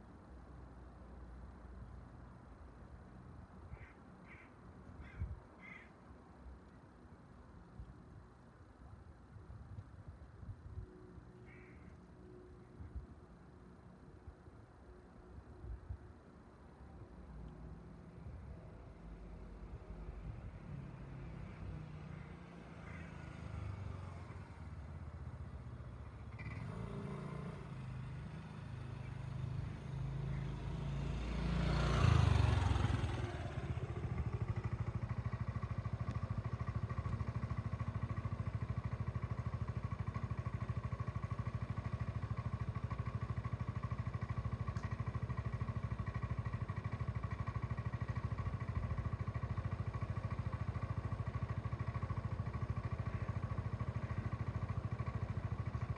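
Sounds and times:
motor scooter engine: 21.7s - 55.9s.

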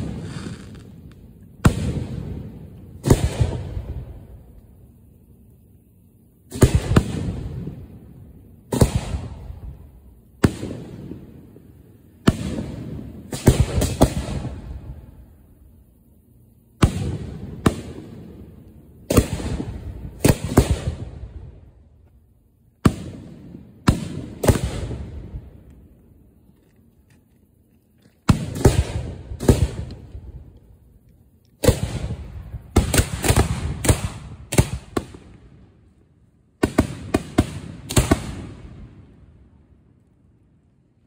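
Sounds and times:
firework shells booming: 0.0s - 4.4s, 22.8s - 25.9s.

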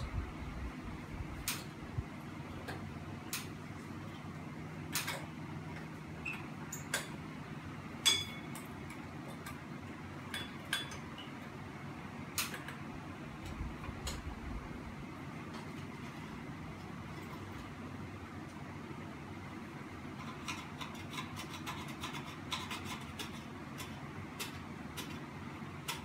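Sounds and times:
sharp ringing clink: 8.0s - 8.5s.

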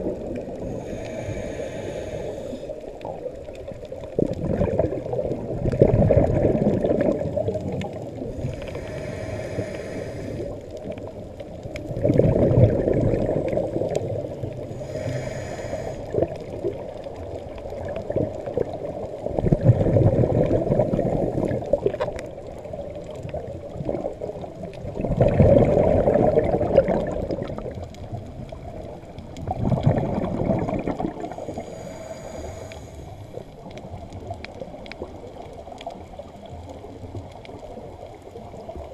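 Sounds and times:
bubbling exhaled air: 0.0s - 38.9s
regulator inhalation hiss: 0.6s - 2.9s, 8.3s - 10.6s, 14.7s - 16.2s, 31.3s - 33.4s.

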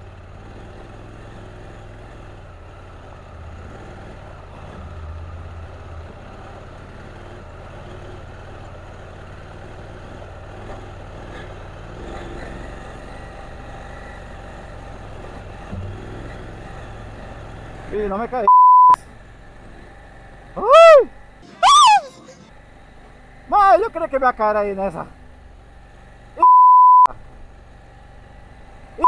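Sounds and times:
motorcycle engine at low revs: 0.0s - 21.5s, 22.5s - 26.4s, 27.1s - 29.0s.

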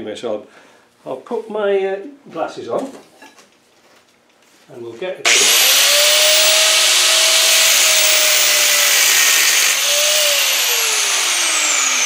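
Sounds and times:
angle grinder whining: 5.2s - 12.0s.

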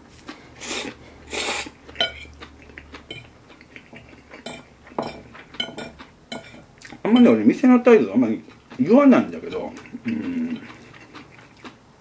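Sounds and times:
person slurping spaghetti: 0.6s - 2.1s, 9.6s - 11.8s.

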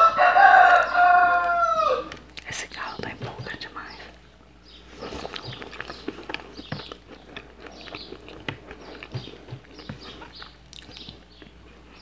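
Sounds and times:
chewing food: 4.7s - 12.0s
wet mouth clicks and smacks: 10.2s - 11.2s.

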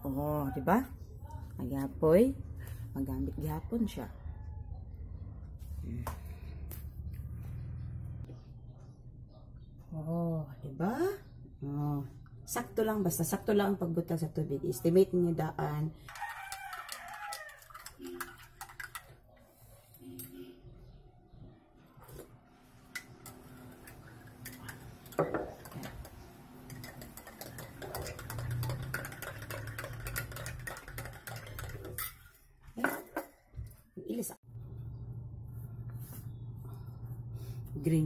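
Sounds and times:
dishes and utensils clinking: 22.0s - 33.5s.

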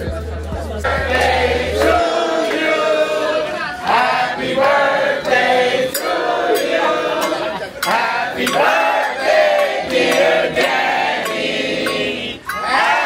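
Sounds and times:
crowd singing in chorus: 0.7s - 13.0s.

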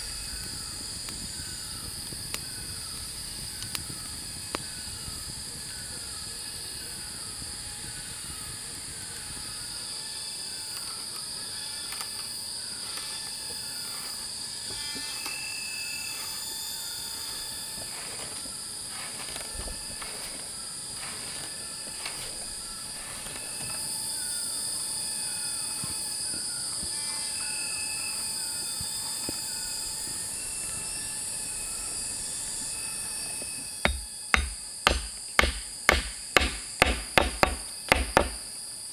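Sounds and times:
insect drone: 0.0s - 38.9s
tool knocking on wood: 33.9s - 38.5s.

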